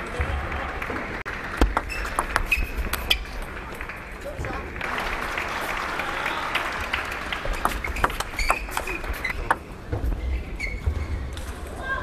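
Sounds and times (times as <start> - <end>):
crowd applauding: 0.0 - 9.4
short high squeaks: 7.8 - 9.4.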